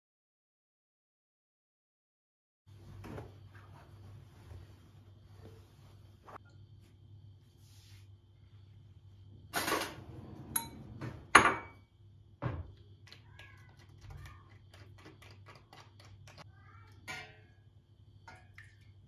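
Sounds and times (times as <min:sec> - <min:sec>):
cloth towel rustling: 0:02.7 - 0:06.4
metallic pot lid clank: 0:17.1 - 0:17.5.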